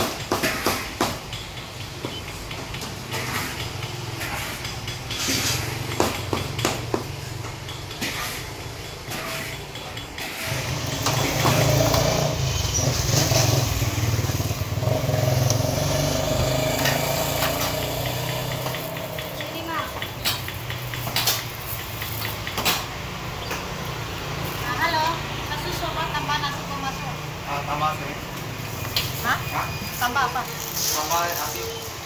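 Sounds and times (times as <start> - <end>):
engine drone: 10.4 - 27.2.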